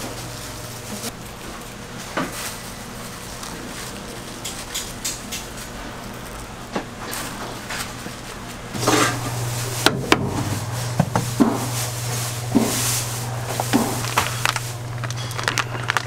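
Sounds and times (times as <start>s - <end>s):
steady low hum: 0.0s - 16.0s
utensils and dishes clinking: 8.8s - 16.0s.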